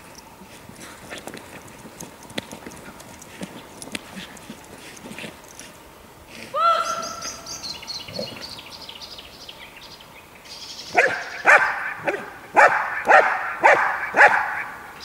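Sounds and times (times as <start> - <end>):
drawn-out high call: 6.5 - 8.9
dog barking: 10.9 - 14.8.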